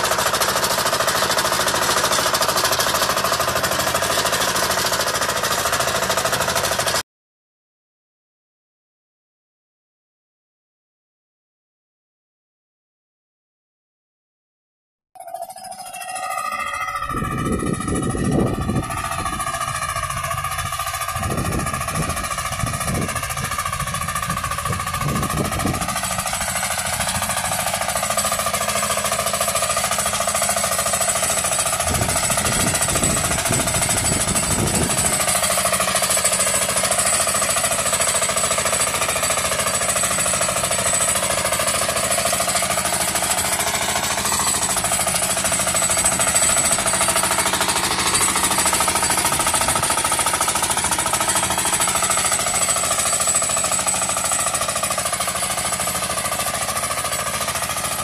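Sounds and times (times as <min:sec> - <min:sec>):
hand tractor engine under load: 0:00.0 - 0:07.0, 0:15.2 - 0:58.0
heavy low rumbles: 0:17.0 - 0:27.4.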